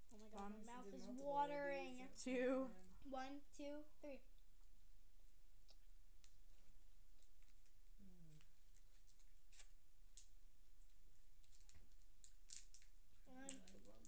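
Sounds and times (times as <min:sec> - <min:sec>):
mouth smacking on candy: 0:05.6 - 0:06.4, 0:07.2 - 0:14.0.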